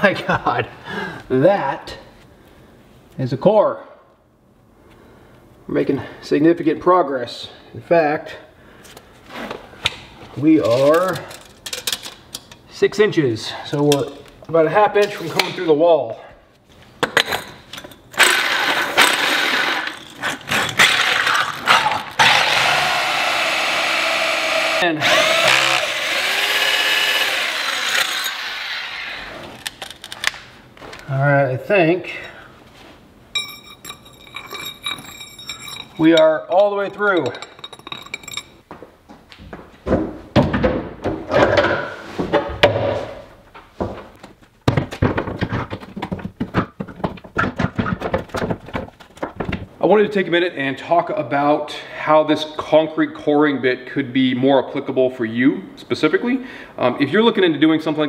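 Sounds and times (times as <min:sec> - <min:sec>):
rotary hammer drilling concrete: 0:18.2 - 0:21.5, 0:22.2 - 0:29.2
wooden cabinet knocks and thuds: 0:39.8 - 0:43.2, 0:43.8 - 0:49.7.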